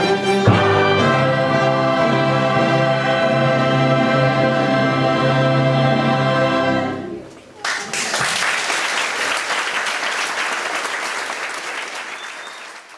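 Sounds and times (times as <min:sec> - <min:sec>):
choir and orchestra chord: 0:00.2 - 0:07.2
audience applause: 0:07.6 - 0:12.9.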